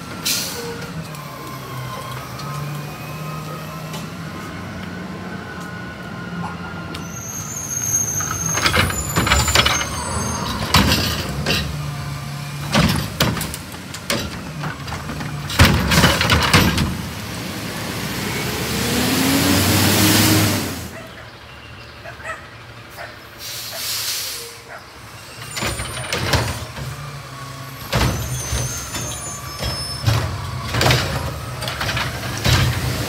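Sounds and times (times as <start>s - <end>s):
garbage truck engine running: 0.0s - 21.9s, 24.9s - 33.0s
loud metal clanks and bangs: 8.3s - 17.1s.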